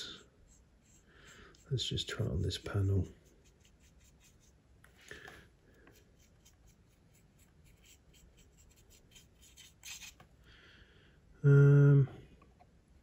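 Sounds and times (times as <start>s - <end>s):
paintbrush strokes on plastic: 0.0s - 5.0s, 5.8s - 10.3s.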